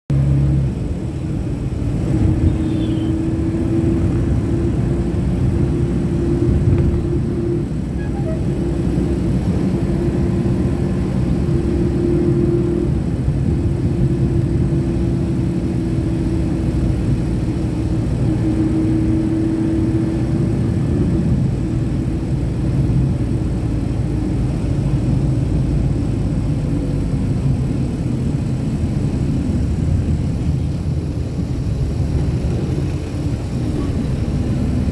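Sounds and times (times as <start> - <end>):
road rumble: 0.1 - 34.9
vehicle engine drone: 0.1 - 34.9
humming tone: 6.4 - 8.6.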